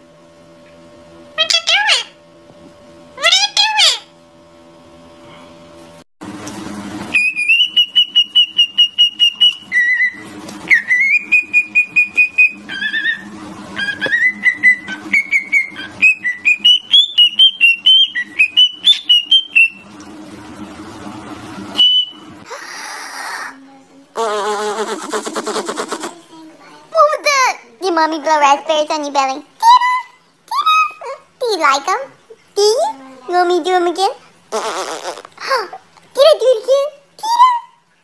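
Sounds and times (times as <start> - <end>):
bird whistling a tune: 7.1 - 19.8, 21.8 - 22.2.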